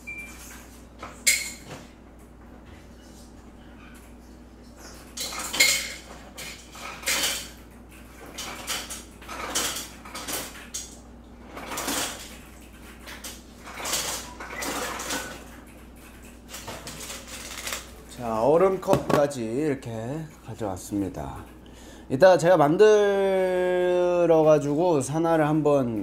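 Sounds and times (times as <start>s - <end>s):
cups and dishes clattering: 4.8s - 7.6s.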